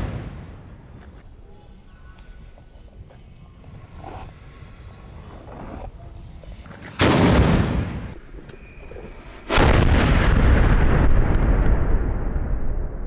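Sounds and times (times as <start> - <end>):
cannon shots: 0.0 - 1.0, 6.8 - 8.2.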